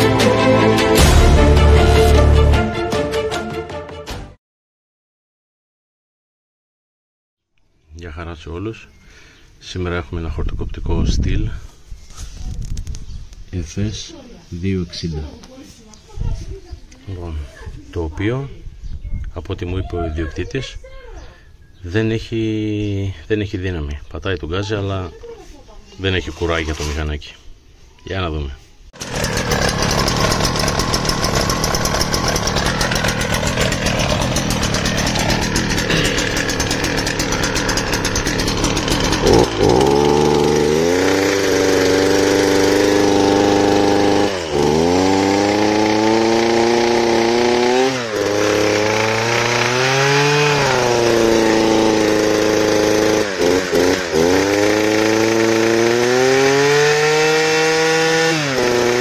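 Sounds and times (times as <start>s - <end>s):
two-stroke engine idling and revving: 29.0s - 59.0s.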